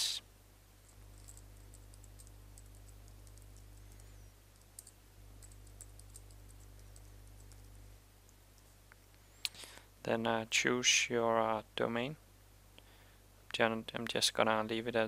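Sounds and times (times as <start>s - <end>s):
low steady hum: 0.0s - 15.0s
keyboard typing: 0.8s - 8.7s.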